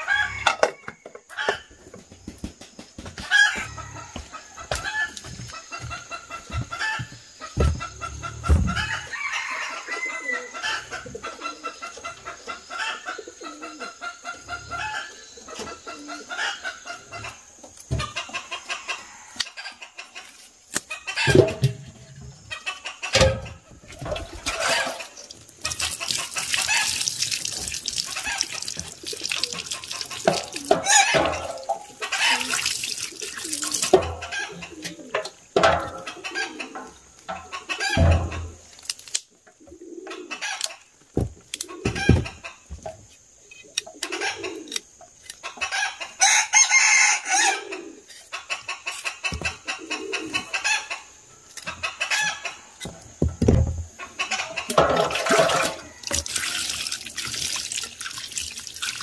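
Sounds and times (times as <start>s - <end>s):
chickens clucking: 0.0s - 59.0s
running water hiss: 23.8s - 35.2s, 54.8s - 59.0s.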